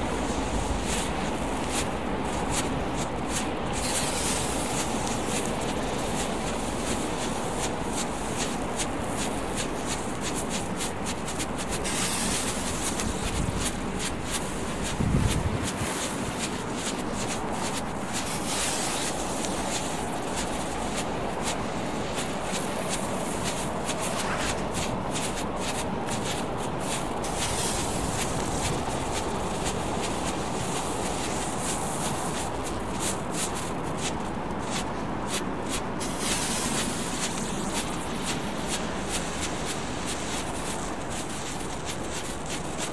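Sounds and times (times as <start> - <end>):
firework crackling: 0.0 - 42.9
firework hissing: 3.7 - 6.8, 11.2 - 14.6, 17.3 - 25.4, 26.2 - 33.7, 36.0 - 42.9.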